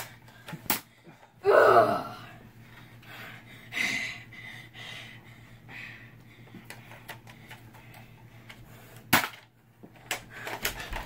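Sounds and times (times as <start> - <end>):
person gasping cry: 1.4 - 2.4.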